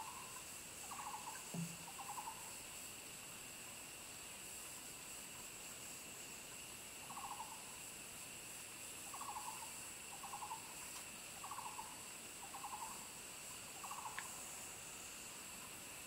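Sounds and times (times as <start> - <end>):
rapid trilled animal call: 0.0 - 2.5, 7.1 - 7.6, 9.1 - 10.8, 11.4 - 13.1, 13.8 - 14.2.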